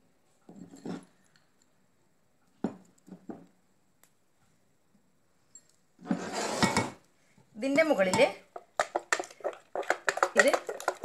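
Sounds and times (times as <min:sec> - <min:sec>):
glass kitchenware clinks and knocks: 0:00.5 - 0:01.3.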